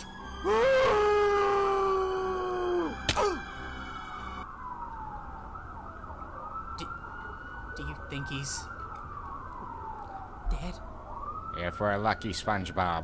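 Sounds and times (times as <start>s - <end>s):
police siren wailing: 0.0s - 13.0s
person yelling: 0.4s - 3.5s.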